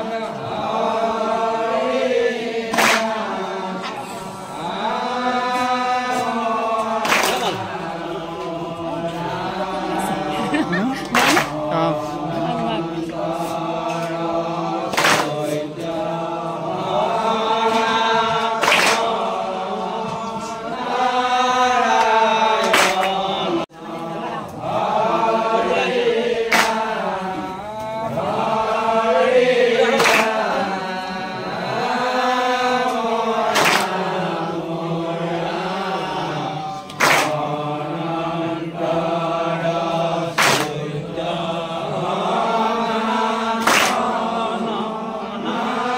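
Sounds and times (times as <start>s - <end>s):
men chanting in unison: 0.0s - 45.9s
sharp hand clap: 2.3s - 4.0s, 5.4s - 8.5s, 11.0s - 11.7s, 14.8s - 15.9s, 17.6s - 19.4s, 21.8s - 23.3s, 26.4s - 27.2s, 29.9s - 30.8s, 32.8s - 34.5s, 36.8s - 37.6s, 40.2s - 41.0s, 43.5s - 44.3s.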